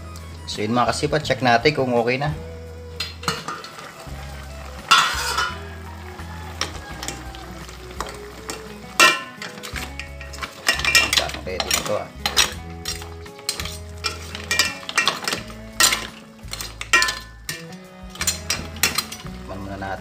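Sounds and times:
ladle clinking against pot and shells: 0:03.0 - 0:04.0, 0:04.8 - 0:19.5.

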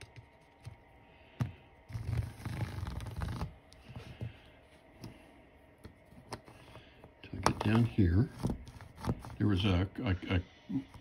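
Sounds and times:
plastic scraping on rails: 0:01.9 - 0:04.3, 0:07.4 - 0:09.4.

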